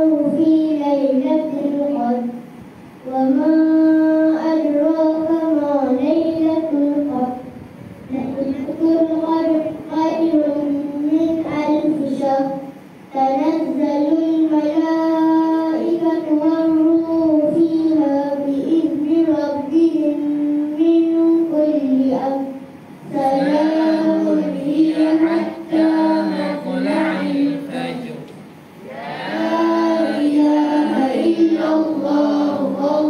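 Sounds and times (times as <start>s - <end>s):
children chanting recitation: 8.1s - 33.0s.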